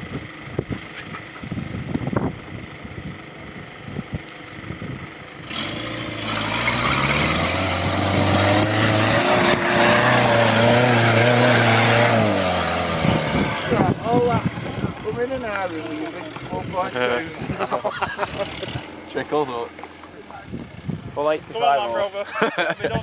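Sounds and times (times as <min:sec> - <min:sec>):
engine revving hard: 0:05.4 - 0:19.7.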